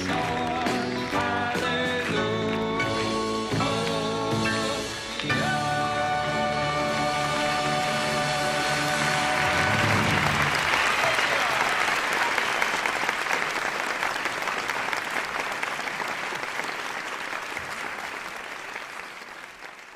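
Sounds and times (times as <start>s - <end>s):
audience applause: 0.0s - 3.2s, 7.3s - 19.9s.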